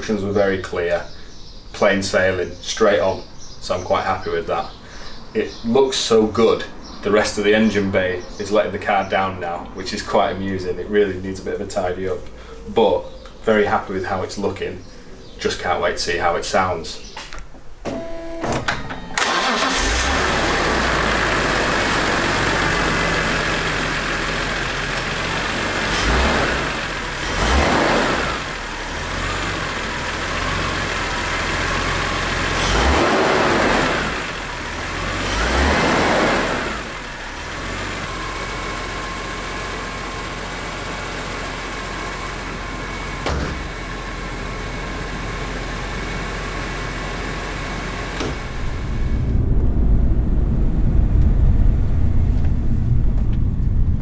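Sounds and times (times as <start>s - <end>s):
car engine idling and revving: 19.2s - 54.0s.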